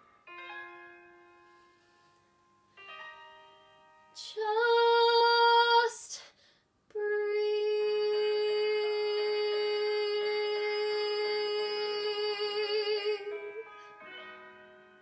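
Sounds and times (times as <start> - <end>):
soft piano chords: 0.0 - 5.2, 12.7 - 15.0.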